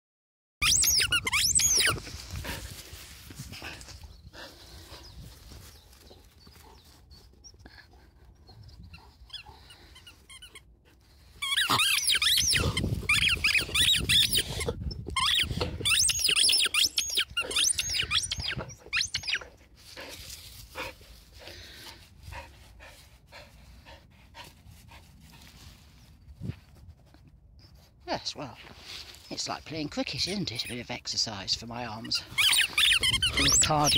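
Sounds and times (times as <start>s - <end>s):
dog whining and yelping: 0.6s - 2.1s, 8.4s - 10.6s, 11.4s - 19.6s, 32.3s - 33.9s
rustling and handling noise: 1.6s - 7.6s.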